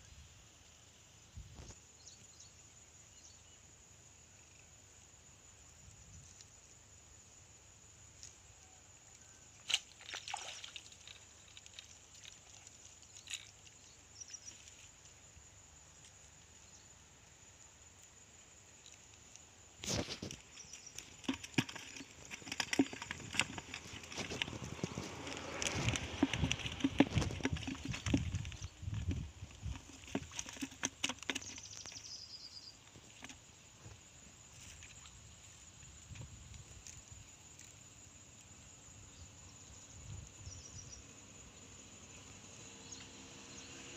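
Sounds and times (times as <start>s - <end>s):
rapid trill of ticks: 8.1s - 15.3s, 15.9s - 33.4s
sharp clicks and rustles: 18.8s - 32.1s.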